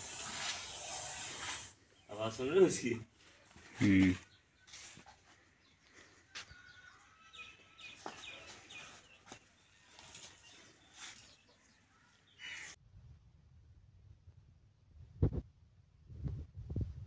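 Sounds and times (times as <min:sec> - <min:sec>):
high chirping of birds: 0:01.8 - 0:12.8.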